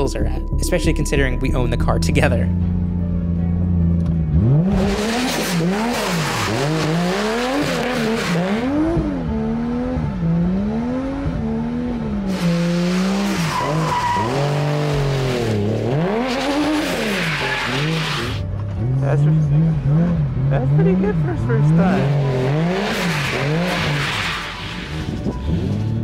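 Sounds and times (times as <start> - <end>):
car engine revving: 2.6 - 26.0
tyres squealing: 12.4 - 18.4.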